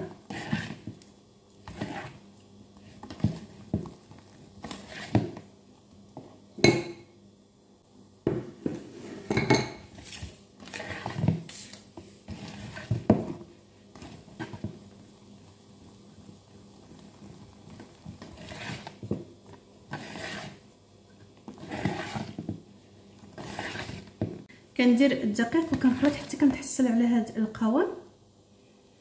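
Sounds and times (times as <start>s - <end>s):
whisk scraping plastic bowl: 0.0s - 4.0s, 4.6s - 5.5s, 10.0s - 13.4s, 17.0s - 20.7s, 21.4s - 22.6s, 23.2s - 24.3s, 25.6s - 26.6s.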